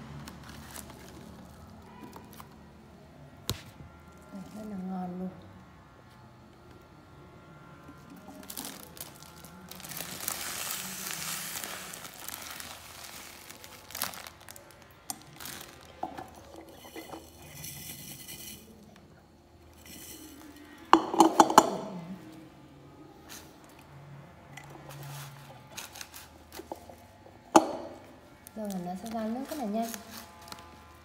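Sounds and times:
sugar pouring hiss: 0:08.3 - 0:18.9, 0:19.7 - 0:21.3
knocks and clinks on glass jar: 0:21.0 - 0:21.8, 0:27.6 - 0:28.0.

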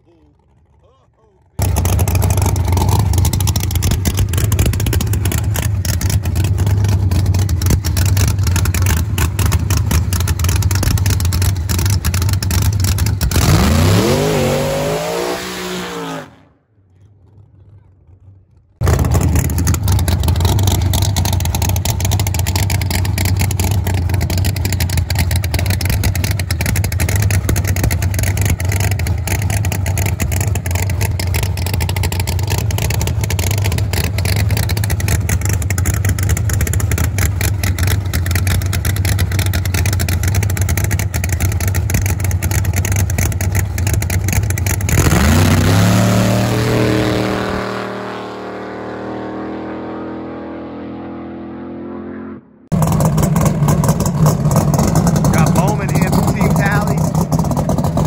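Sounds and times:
car engine running loudly: 0:01.4 - 0:58.0.

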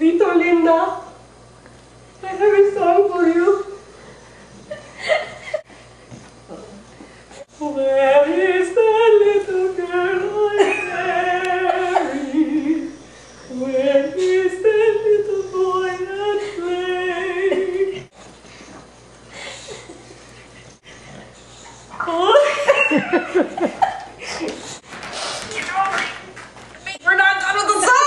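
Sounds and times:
person singing slow melody: 0:07.5 - 0:18.1.

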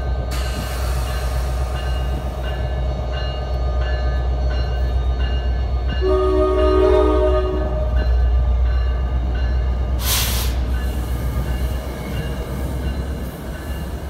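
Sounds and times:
diesel train rumbling: 0:00.0 - 0:14.0
train bell dinging: 0:00.0 - 0:14.0
train horn chord: 0:06.0 - 0:08.1.

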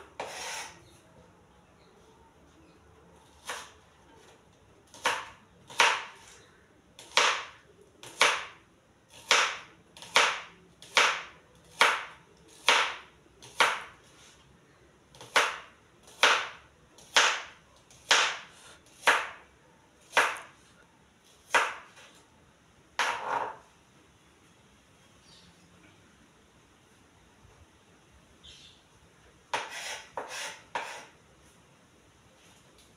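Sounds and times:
knife chopping on plastic board: 0:04.9 - 0:06.3, 0:07.0 - 0:13.9, 0:15.2 - 0:19.4, 0:20.1 - 0:20.5, 0:21.5 - 0:22.0, 0:23.0 - 0:23.6, 0:29.5 - 0:31.1.

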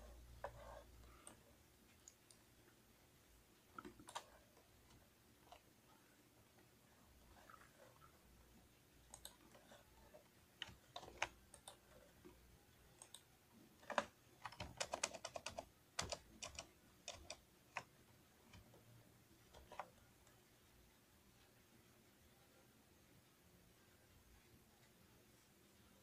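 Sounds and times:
keyboard clicks: 0:03.7 - 0:05.6, 0:09.0 - 0:09.6, 0:10.6 - 0:11.9, 0:12.9 - 0:17.9, 0:19.5 - 0:20.0.

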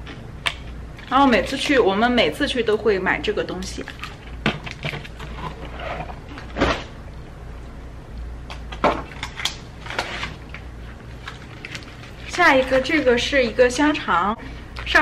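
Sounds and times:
groceries knocking and rustling: 0:03.8 - 0:07.0.

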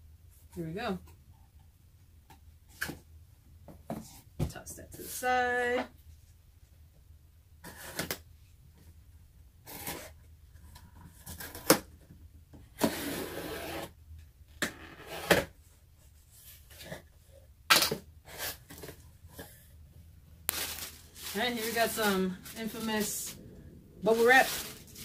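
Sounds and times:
cardboard rustling: 0:20.5 - 0:25.0.

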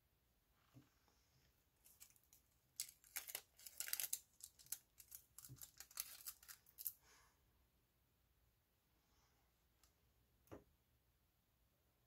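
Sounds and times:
packaging crinkling: 0:01.8 - 0:07.0.

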